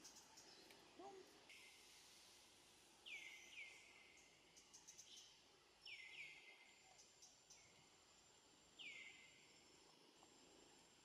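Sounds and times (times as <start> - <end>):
faint whistled bird calls: 0.0 - 7.8, 8.8 - 9.5.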